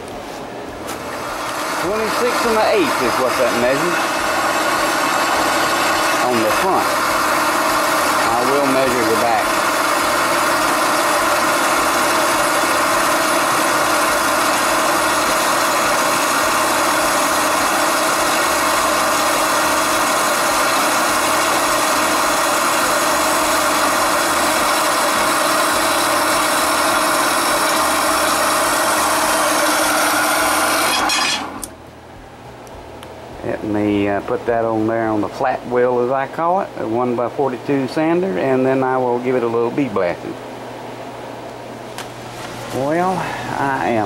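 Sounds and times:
bandsaw humming and hissing: 0:01.1 - 0:31.7.

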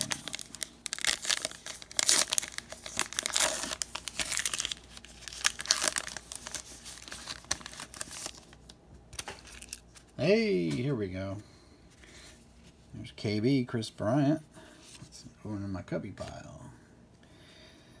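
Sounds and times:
plastic wrapper tearing and crinkling: 0:00.0 - 0:10.1.

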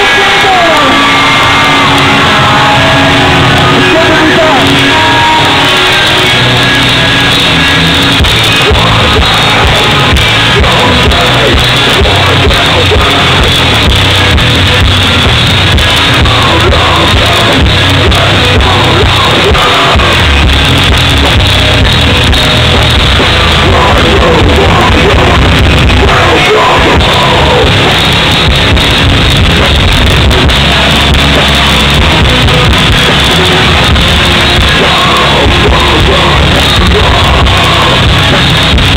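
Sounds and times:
shouted vocals: 0:00.0 - 0:07.6, 0:23.5 - 0:27.9
hardcore band playing live: 0:00.0 - 0:38.9.

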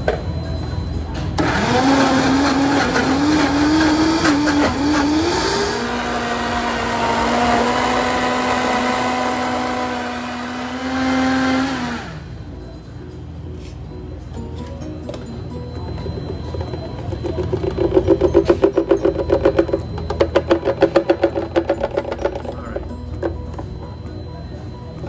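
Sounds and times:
blender motor whining: 0:01.4 - 0:12.4.

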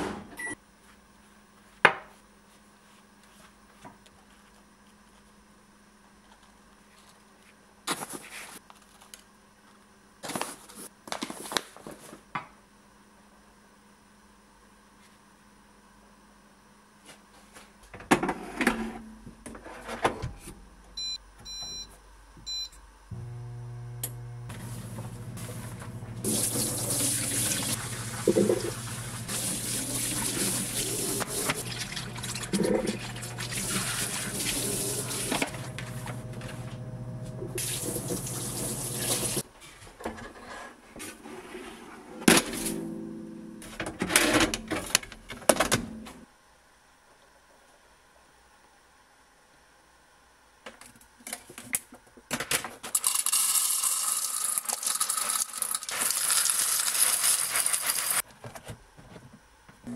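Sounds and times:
low steady hum: 0:18.6 - 0:39.6, 0:42.2 - 0:50.6
kitchen things clattering: 0:27.8 - 0:29.1.

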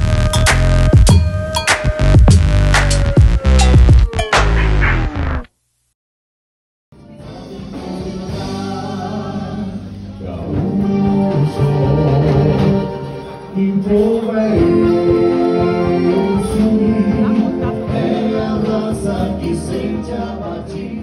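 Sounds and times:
folk music with group singing: 0:07.0 - 0:21.0.

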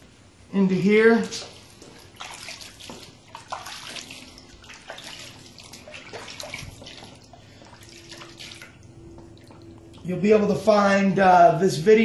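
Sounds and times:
water pouring and trickling: 0:01.0 - 0:10.2.

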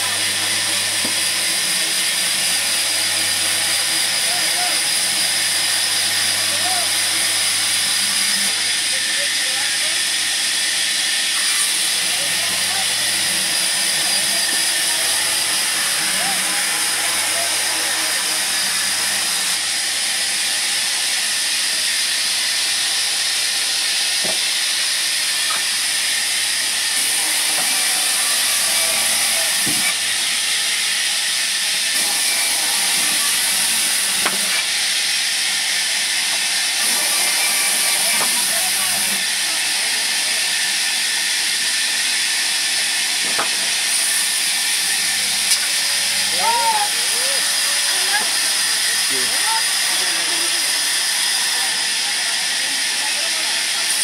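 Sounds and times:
band saw hissing: 0:00.0 - 0:54.0.

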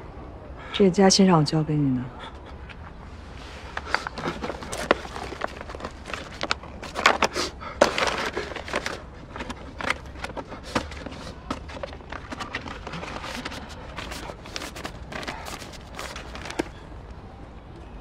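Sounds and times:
paper envelope rustling: 0:03.4 - 0:16.8.

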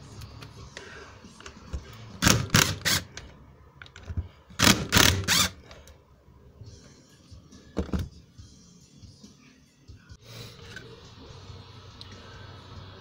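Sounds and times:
power driver rattling bursts: 0:02.2 - 0:03.1, 0:04.6 - 0:05.6.

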